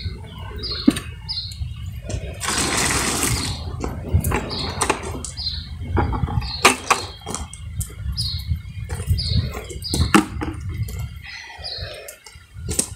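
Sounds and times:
wind rumble on microphone: 0.0 - 12.9
small bird chirping: 0.6 - 2.0, 4.5 - 10.2.

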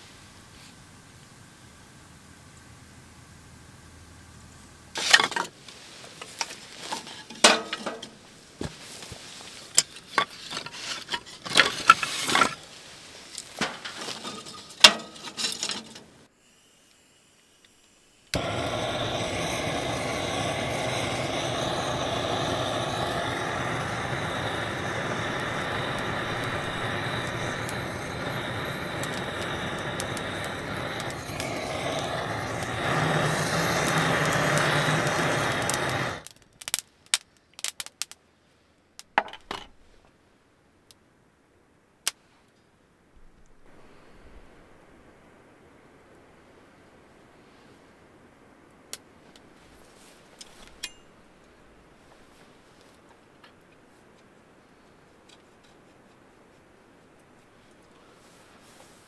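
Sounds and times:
firewood knocking and clacking: 6.2 - 8.2
gas torch hissing: 16.2 - 36.3.

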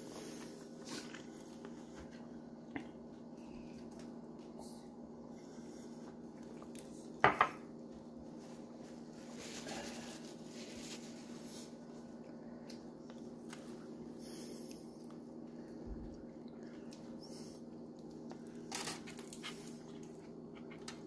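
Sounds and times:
steady low hum: 0.0 - 21.0
tableware clinking on counter: 7.2 - 7.6
soft rustle: 8.3 - 12.1.

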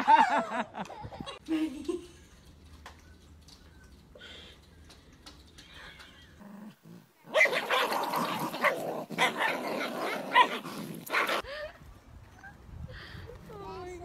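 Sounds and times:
small dogs growling and barking: 5.7 - 11.5.

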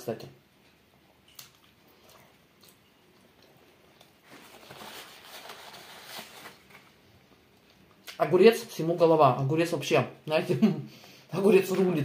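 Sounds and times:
mouth chewing sounds: 1.0 - 4.2
paper napkin rustling: 4.2 - 7.0.

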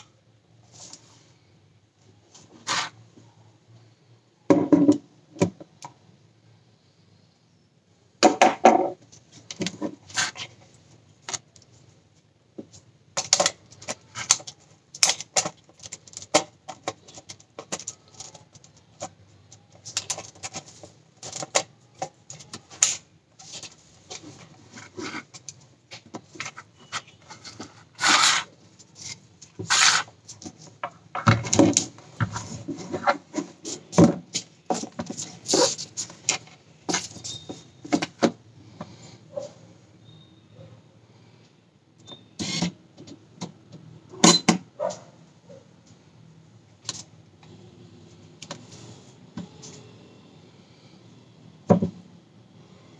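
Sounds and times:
camera scraping on wooden desk: 26.4 - 28.5, 29.6 - 30.1.

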